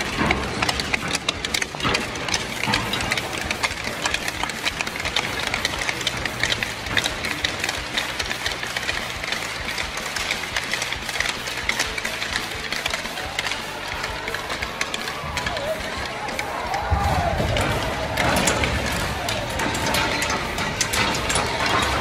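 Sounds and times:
hockey sticks and skates clattering: 0:00.0 - 0:22.0.

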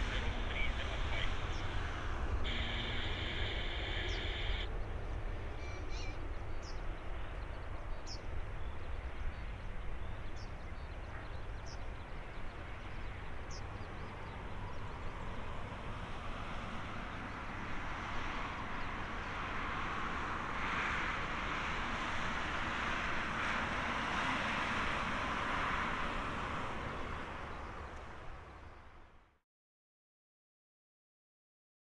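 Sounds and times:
distant jet engine roar: 0:00.0 - 0:05.6, 0:06.2 - 0:29.0
high bird chirps: 0:02.5 - 0:04.7.

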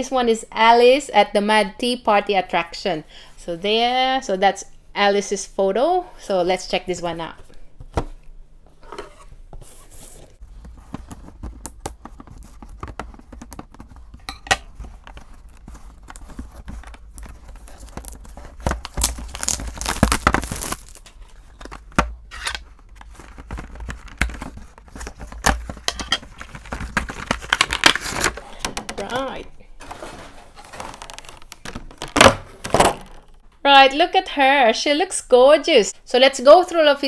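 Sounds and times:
plastic wrapping tearing and crinkling: 0:14.9 - 0:21.7, 0:22.3 - 0:29.1, 0:30.6 - 0:31.7.

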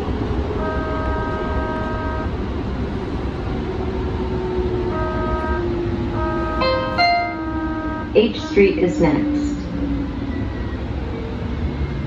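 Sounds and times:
tram rumbling on track: 0:00.0 - 0:12.0
tram horn: 0:00.5 - 0:02.6, 0:04.0 - 0:09.8.

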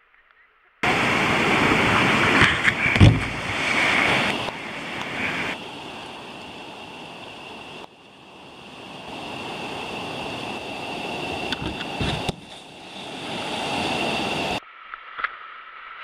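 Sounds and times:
rushing river water: 0:00.8 - 0:14.6
wind noise on microphone: 0:00.8 - 0:14.6
loud thump: 0:02.4 - 0:03.6.

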